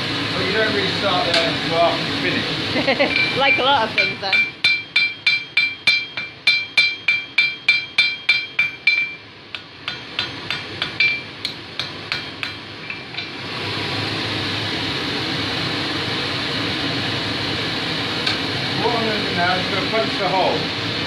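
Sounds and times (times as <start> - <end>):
forge blower rushing: 0.0 - 21.0
hammer striking steel on anvil: 3.1 - 13.4.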